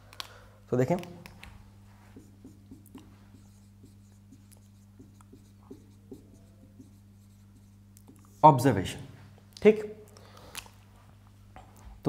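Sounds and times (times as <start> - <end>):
marker writing on whiteboard: 1.9 - 8.5.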